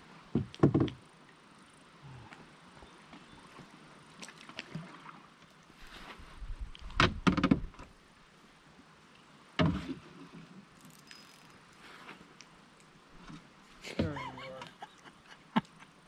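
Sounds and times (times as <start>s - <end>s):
paddle knocking against hull: 0.3s - 1.0s, 6.9s - 7.8s
paddle splashing: 3.1s - 6.4s.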